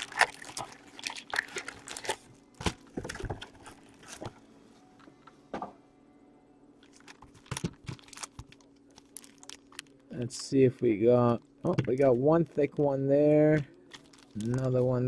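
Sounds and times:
cardboard and plastic wrapping crinkling: 0:00.0 - 0:04.4, 0:06.8 - 0:10.1, 0:13.4 - 0:15.0.

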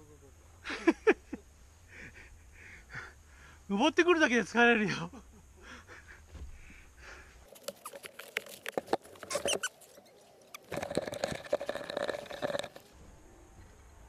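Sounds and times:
gear rustling: 0:07.4 - 0:12.9.

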